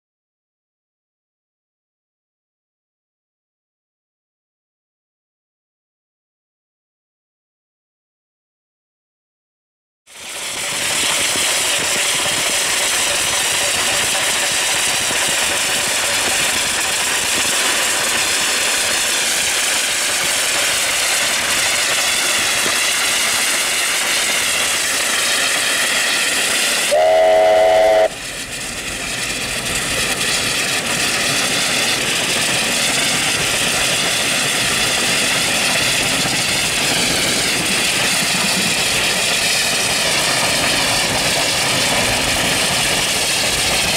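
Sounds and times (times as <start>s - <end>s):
steam locomotive running: 10.1s - 43.9s
locomotive whistle blast: 26.9s - 28.2s.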